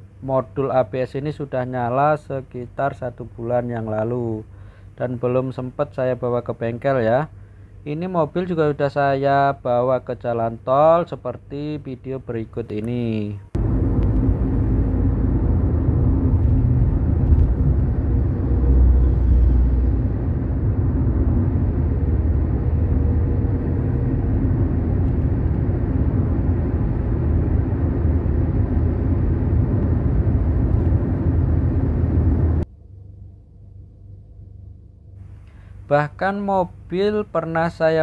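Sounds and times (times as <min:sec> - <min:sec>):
faint low hum: 0:00.0 - 0:38.0
in-cabin road noise: 0:12.7 - 0:32.7.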